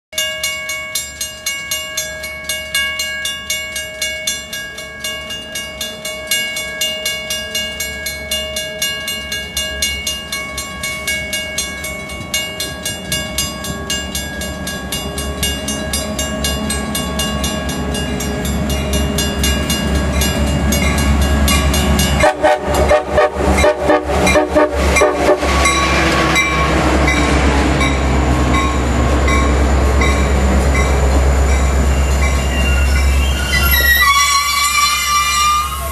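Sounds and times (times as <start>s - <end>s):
train rumble: 1.5s - 35.9s
train air horn chord: 22.2s - 26.0s.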